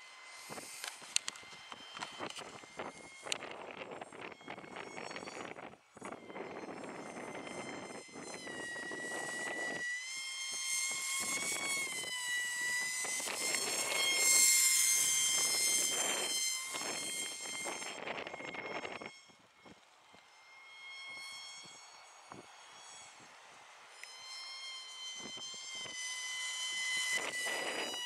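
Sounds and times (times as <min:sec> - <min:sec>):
model aircraft motor whining: 0:00.0 - 0:28.0
wind on microphone: 0:00.4 - 0:19.8, 0:25.1 - 0:28.0.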